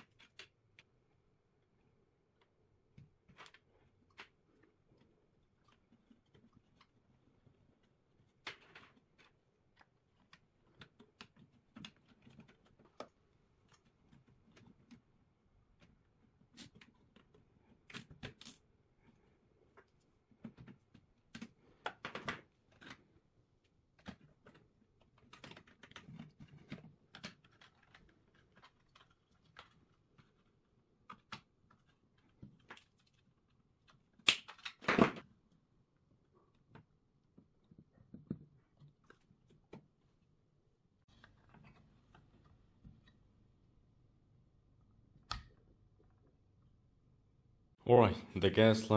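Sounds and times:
hands clicking plastic parts: 0.0s - 1.0s, 2.3s - 35.7s.

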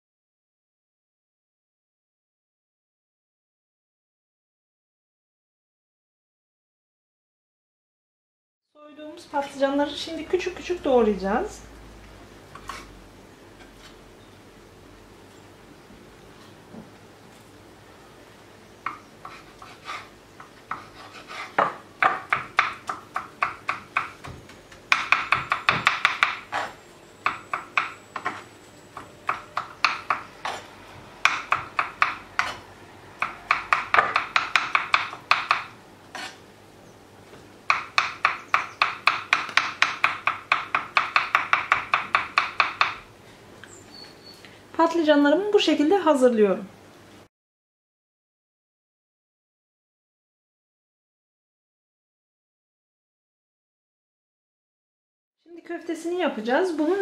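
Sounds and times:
knife chopping on wooden board: 18.8s - 32.6s, 33.2s - 36.4s, 37.7s - 43.0s.

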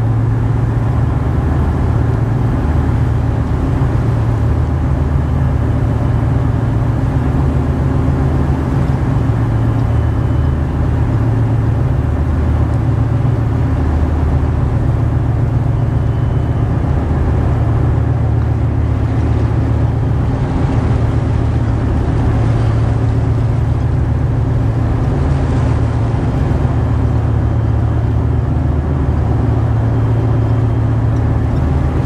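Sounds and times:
propeller wash churning water: 0.0s - 32.0s
tugboat diesel engine drone: 0.0s - 32.0s.

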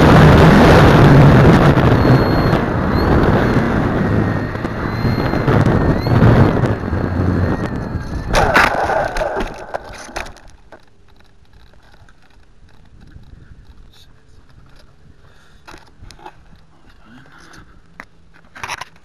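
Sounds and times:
model plane motor whine: 0.0s - 8.6s
wind rush on microphone: 0.0s - 10.7s, 11.5s - 17.9s
model plane crashing: 3.0s - 10.9s.

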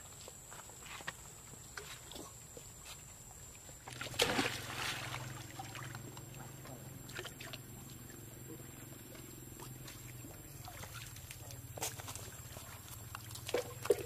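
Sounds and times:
steady low hum: 0.0s - 14.0s
monkeys splashing in water: 3.8s - 14.0s.

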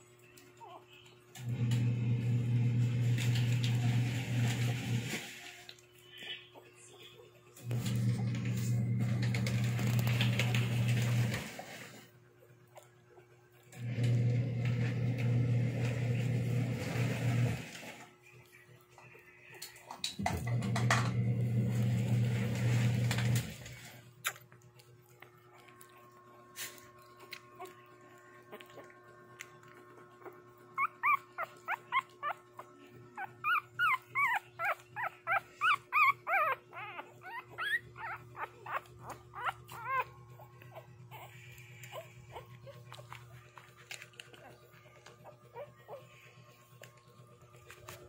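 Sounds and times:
puppies whimpering: 0.4s - 1.2s, 5.7s - 11.3s, 24.6s - 48.0s
low steady hum: 18.1s - 48.0s.

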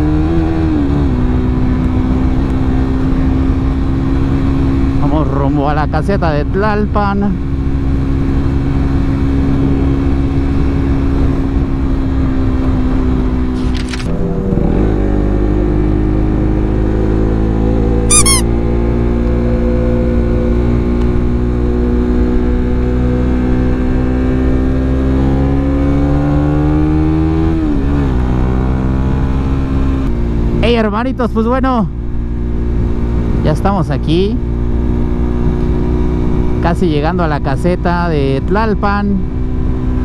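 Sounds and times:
motorcycle engine accelerating: 0.0s - 40.0s
motorcycle gear changes: 13.5s - 14.9s, 18.1s - 18.5s
brief high chirp: 18.1s - 18.5s.

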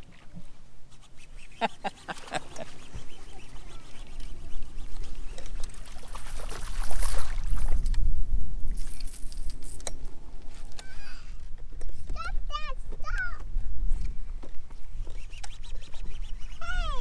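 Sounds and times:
fish splashing at the surface: 5.5s - 7.8s.

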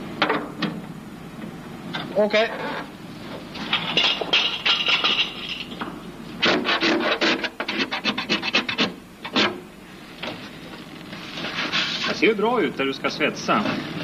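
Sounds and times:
scraping on sheet metal: 6.4s - 9.6s, 11.2s - 12.3s.

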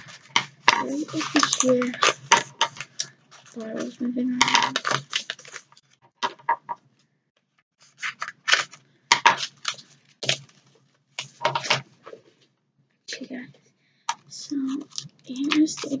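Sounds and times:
plastic packaging crinkling: 0.0s - 6.0s, 7.9s - 11.8s, 14.7s - 16.0s.

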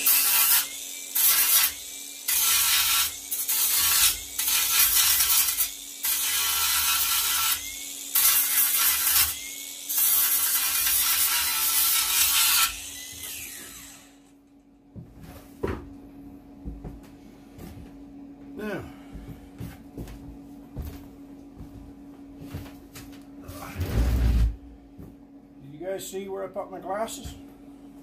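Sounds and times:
angle grinder grinding steel: 0.0s - 14.3s
grinder motor humming: 0.0s - 14.4s.

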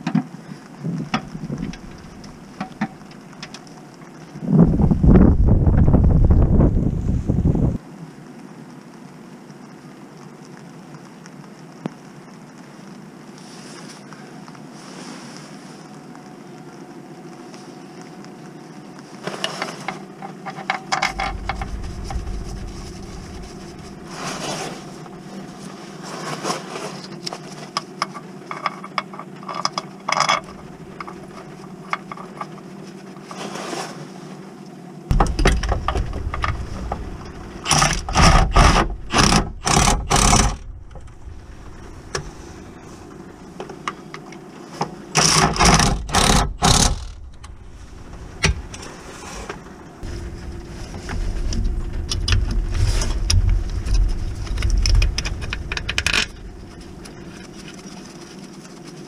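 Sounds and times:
steady low hum: 0.4s - 7.8s, 21.0s - 26.3s, 30.0s - 33.1s, 34.7s - 59.0s
metallic clicks and scrapes: 19.4s - 27.4s, 35.1s - 44.0s, 45.2s - 59.0s.

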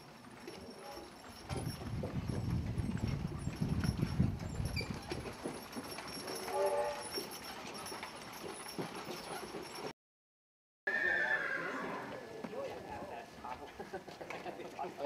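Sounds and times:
hooves clopping: 0.0s - 9.9s, 11.0s - 15.0s
wooden wheels rumbling: 0.0s - 9.9s.

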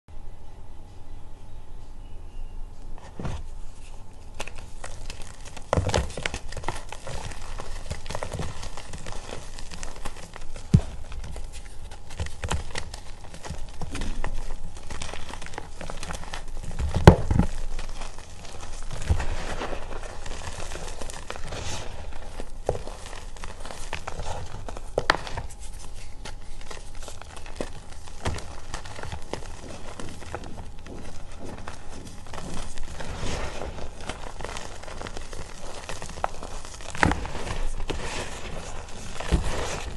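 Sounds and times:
chalk crunching and crumbling: 3.1s - 39.9s.

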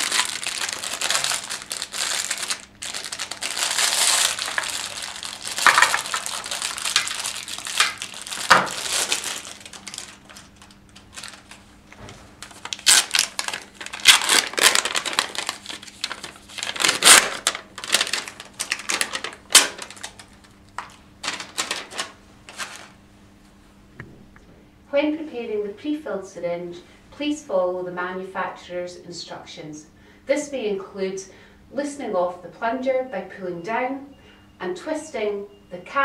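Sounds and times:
plastic and paper packaging crinkling: 0.0s - 23.0s.

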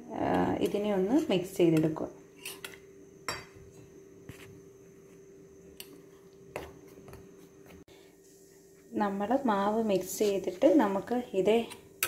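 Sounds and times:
spoon stirring batter in bowl: 9.9s - 12.0s.

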